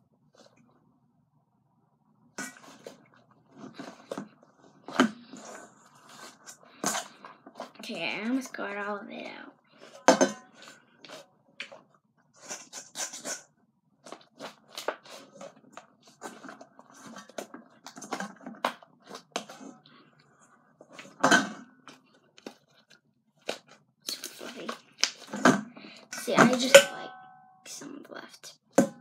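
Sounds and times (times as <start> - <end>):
spoon scraping metal bowl: 12.4 - 13.4
slime squelching: 14.0 - 21.2.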